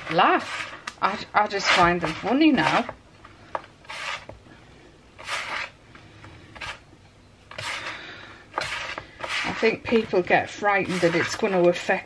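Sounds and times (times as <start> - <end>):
hand scraping gritty mixture: 0.0 - 3.0, 3.8 - 4.4, 5.2 - 5.8, 6.4 - 6.9, 7.5 - 12.0.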